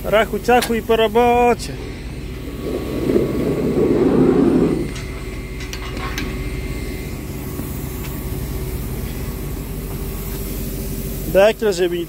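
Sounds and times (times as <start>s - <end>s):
truck engine running: 0.0s - 11.5s
short rushing noise: 2.4s - 5.0s.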